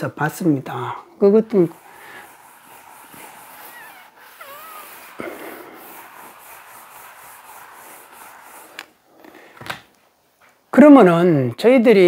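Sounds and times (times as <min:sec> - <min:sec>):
eraser rubbing on chalkboard: 0:01.5 - 0:09.0.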